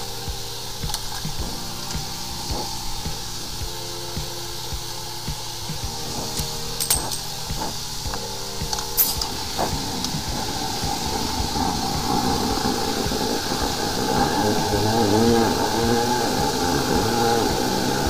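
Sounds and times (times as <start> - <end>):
water jet hissing: 0.0 - 18.0
sharp metallic clinks: 6.4 - 7.3, 9.0 - 9.3.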